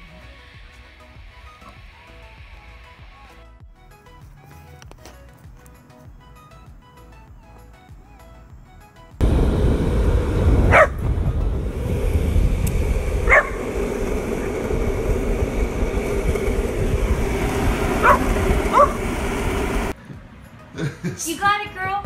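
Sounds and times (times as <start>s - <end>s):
loud low rumble: 9.2s - 20.0s
dog yipping: 10.7s - 11.0s, 13.3s - 13.6s, 18.0s - 19.0s.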